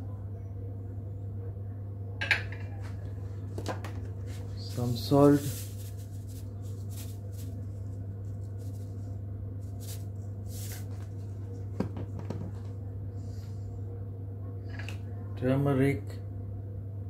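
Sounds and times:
steady low hum: 0.0s - 17.0s
salt grains pattering: 4.4s - 11.0s.

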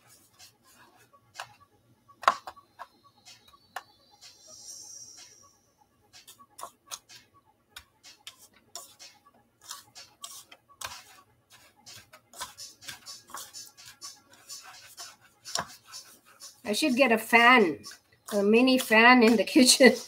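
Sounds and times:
hands coating food in breadcrumbs: 8.4s - 20.0s.

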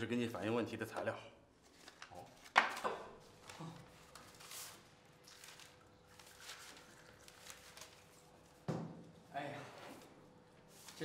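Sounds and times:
paper rustling: 1.6s - 8.6s.

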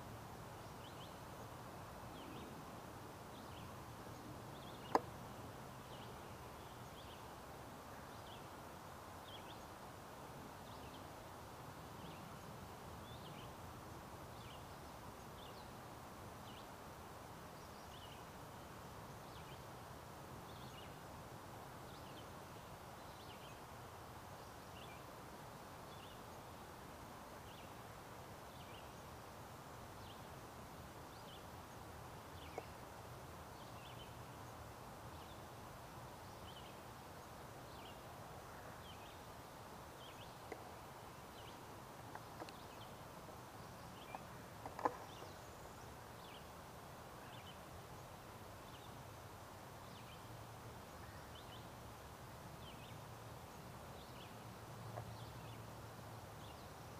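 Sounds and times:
steady low hiss: 0.0s - 56.9s
faint clicks: 4.8s - 5.2s, 32.4s - 32.7s, 42.0s - 42.8s, 44.0s - 45.3s.

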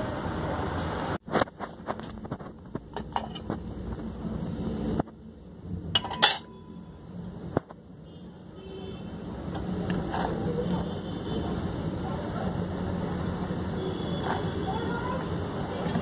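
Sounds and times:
metal lid and pot clinking: 6.0s - 6.6s
metallic clatter: 6.0s - 6.6s.

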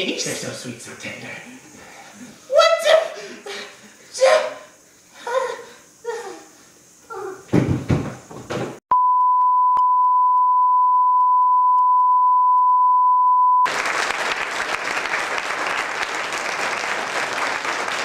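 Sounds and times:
censor bleep tone: 8.9s - 13.7s
loud applause: 13.7s - 18.0s.

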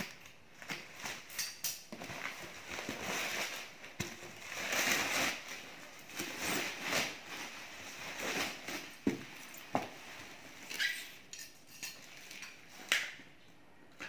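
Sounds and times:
bubble wrap crinkling: 0.0s - 11.2s.

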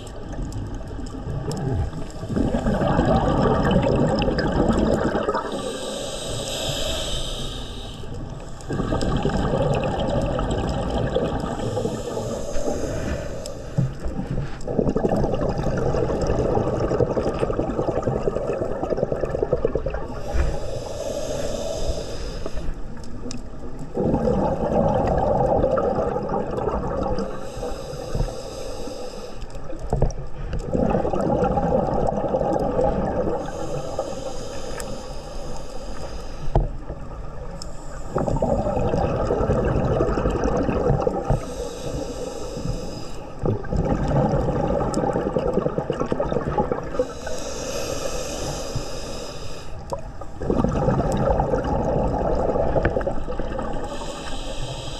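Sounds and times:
exhaled breath bubbling: 0.0s - 54.9s
regulator inhale hissing: 5.4s - 9.3s, 11.4s - 14.7s, 20.1s - 23.8s, 27.2s - 30.7s, 33.3s - 39.0s, 41.2s - 43.7s, 46.9s - 50.4s, 52.9s - 54.9s.

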